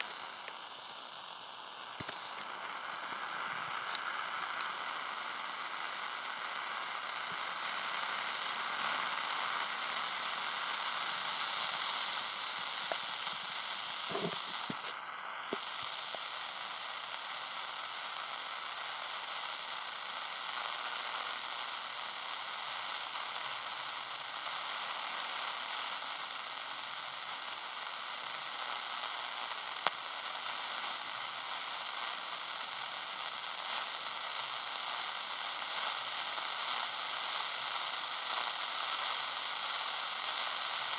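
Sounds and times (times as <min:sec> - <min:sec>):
radio static hiss: 0:00.0 - 0:40.9.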